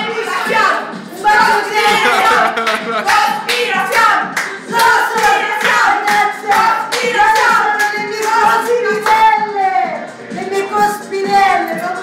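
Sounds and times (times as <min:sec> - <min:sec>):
women singing together: 0:00.0 - 0:12.0
rhythmic hand clapping: 0:01.5 - 0:09.5.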